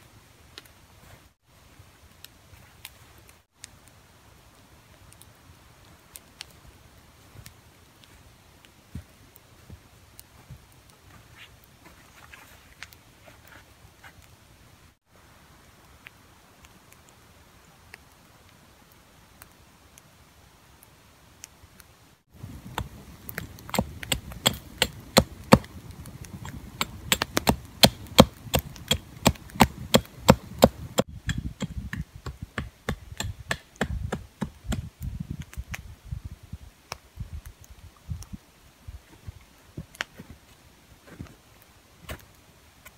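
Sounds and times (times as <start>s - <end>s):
hatchet chopping wood: 22.7s - 34.9s.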